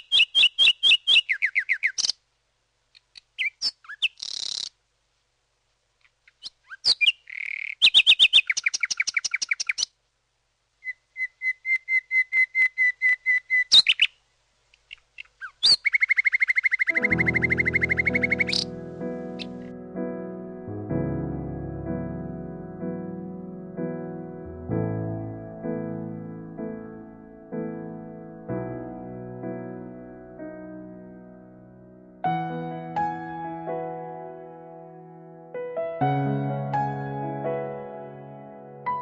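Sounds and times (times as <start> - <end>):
songbird singing: 0.0 - 2.3, 2.9 - 4.8, 6.0 - 10.0, 10.7 - 19.8
keyboard music with low notes: 17.0 - 39.0.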